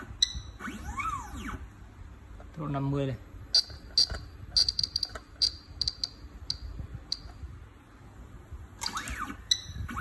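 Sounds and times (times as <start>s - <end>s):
rotary encoder clicks: 3.5s - 7.5s.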